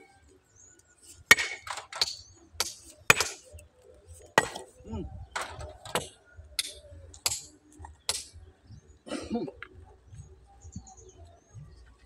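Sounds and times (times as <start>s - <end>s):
sledgehammer striking rock: 1.3s - 3.4s.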